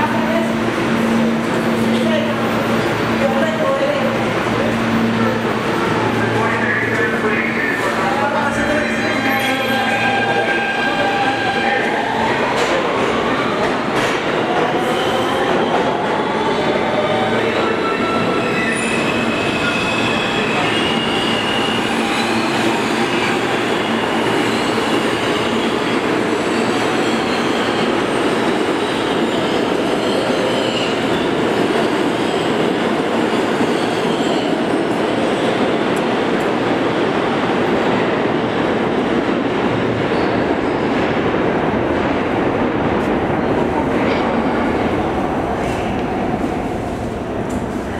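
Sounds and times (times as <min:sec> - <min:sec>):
subway train rumble and hiss: 0:00.0 - 0:47.9.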